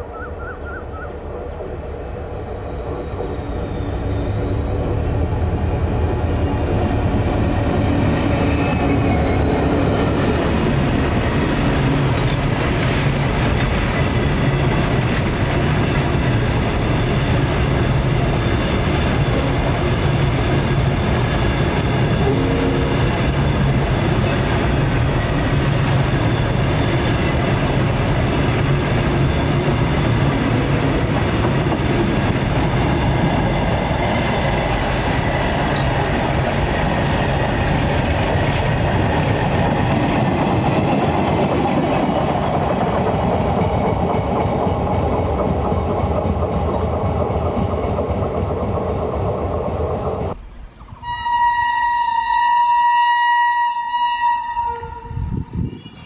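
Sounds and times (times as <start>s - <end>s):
train wheels clattering on rails: 6.3s - 50.4s.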